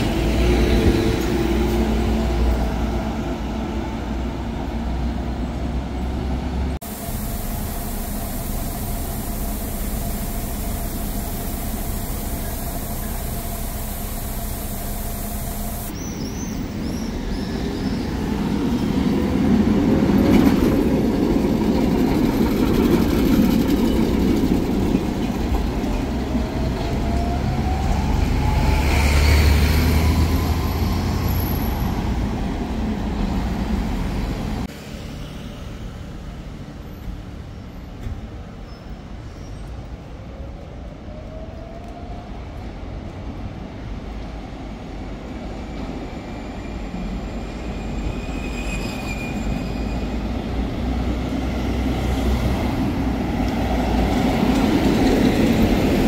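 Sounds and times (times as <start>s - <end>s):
tram wheels rumbling on rails: 0.0s - 56.0s
tram motor whine rising: 6.6s - 34.6s.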